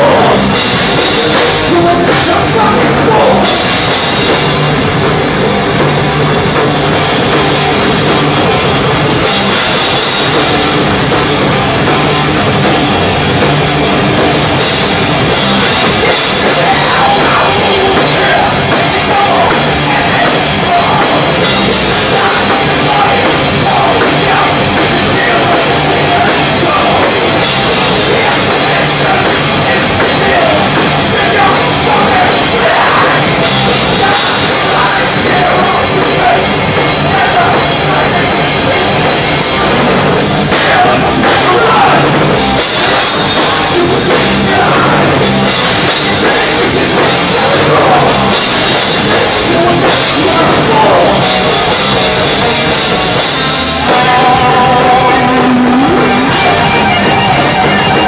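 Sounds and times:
rapid drumming: 0.0s - 58.0s
thrash metal band playing: 0.0s - 58.0s.

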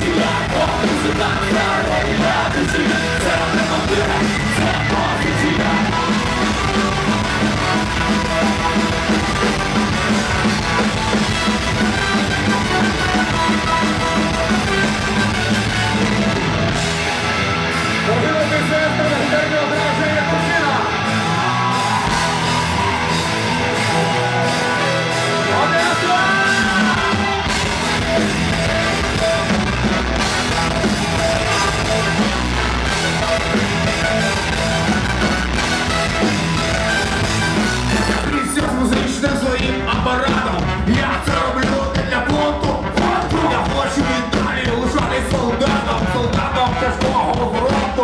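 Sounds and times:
man singing: 0.0s - 7.6s, 24.8s - 27.4s, 37.9s - 48.0s
heavy bass line: 0.0s - 48.0s
live rock band playing: 0.0s - 48.0s.

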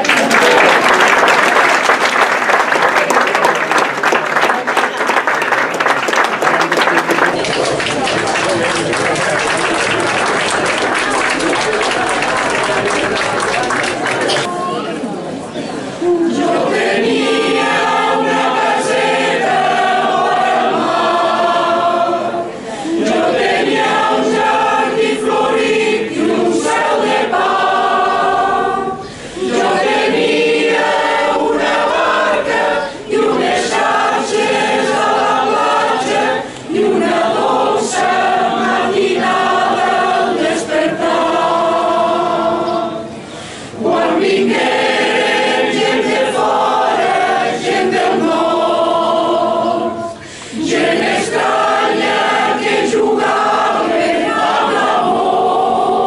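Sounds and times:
mixed choir singing: 15.7s - 56.0s.

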